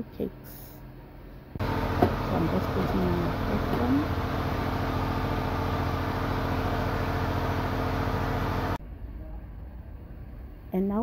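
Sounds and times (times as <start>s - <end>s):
fan whirring: 1.4s - 8.8s.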